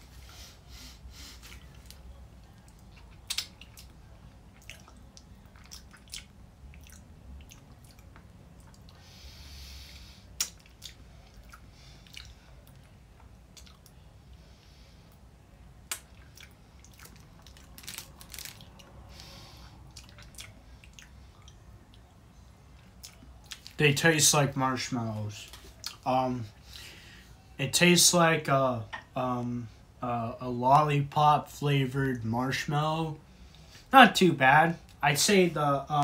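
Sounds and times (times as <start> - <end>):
breath hiss: 9.0 - 10.4, 19.0 - 19.8
sucking and biting on candy: 15.9 - 21.1.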